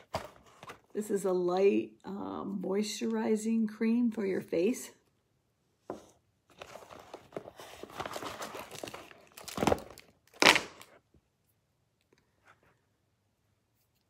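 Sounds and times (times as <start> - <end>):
plastic crinkling and rustling: 6.5 - 10.9.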